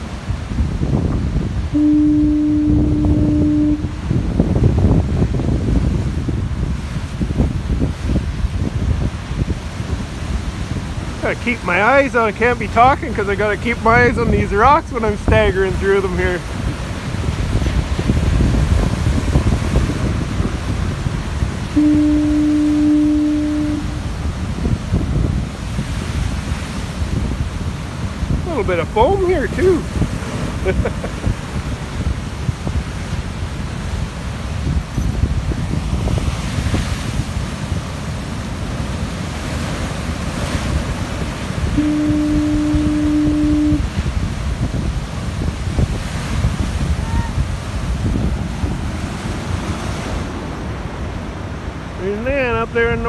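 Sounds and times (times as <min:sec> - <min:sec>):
heavy surf breaking on rocks: 0:00.0 - 0:53.0
foghorn blast: 0:01.7 - 0:04.5, 0:17.7 - 0:24.6, 0:40.8 - 0:44.3.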